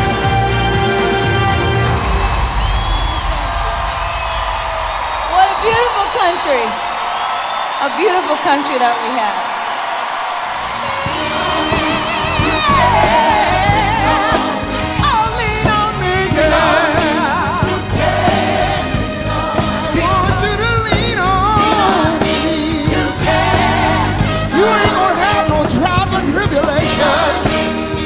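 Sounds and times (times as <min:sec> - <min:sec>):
live band playing: 0:00.0 - 0:04.0, 0:10.6 - 0:28.0
steady drum beat: 0:00.0 - 0:07.2, 0:10.7 - 0:28.0
gospel choir singing: 0:10.4 - 0:28.0
solo voices singing with vibrato: 0:10.8 - 0:28.0.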